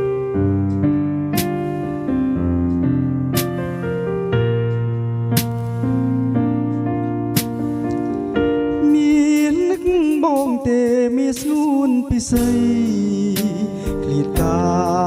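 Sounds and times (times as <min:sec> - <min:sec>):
keyboard chords: 0:00.0 - 0:15.0
man singing with vibrato: 0:08.8 - 0:15.0.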